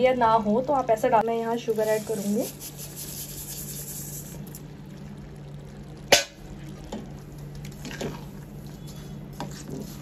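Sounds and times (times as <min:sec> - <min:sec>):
sugar pouring hiss: 0:01.2 - 0:10.0.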